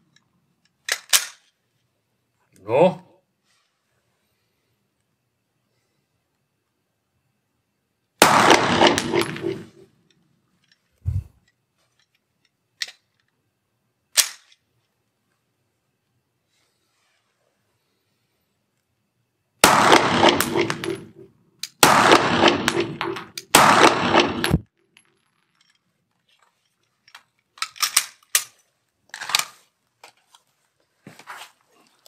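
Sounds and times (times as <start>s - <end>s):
gun handling clicks: 0.1s - 1.6s, 8.8s - 13.4s, 14.1s - 14.7s, 21.6s - 24.6s, 26.8s - 30.2s
pistol shots echoing: 8.2s - 9.8s, 19.6s - 21.2s, 21.8s - 24.6s.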